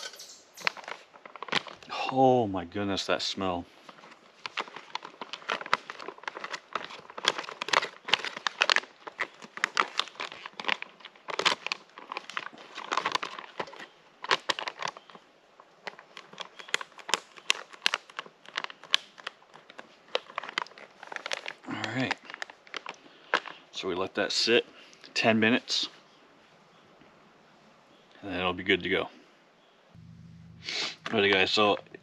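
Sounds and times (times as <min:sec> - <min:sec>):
food pouch crinkling: 0:00.6 - 0:01.9, 0:03.8 - 0:23.6.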